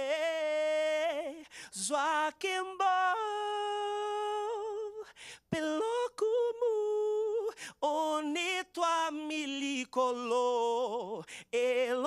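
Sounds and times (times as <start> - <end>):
man singing a cappella: 0.0 - 12.0
person breathing: 1.4 - 1.8, 5.0 - 5.5, 7.5 - 7.8, 11.2 - 11.6.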